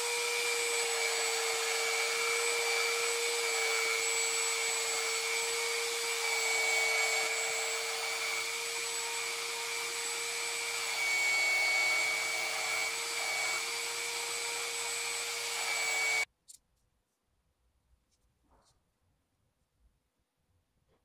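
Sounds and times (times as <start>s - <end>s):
belt sander motor whine: 0.0s - 16.3s.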